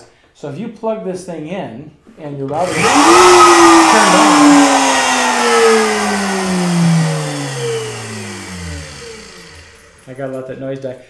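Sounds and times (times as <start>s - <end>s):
router motor spinning down: 2.6s - 10.1s.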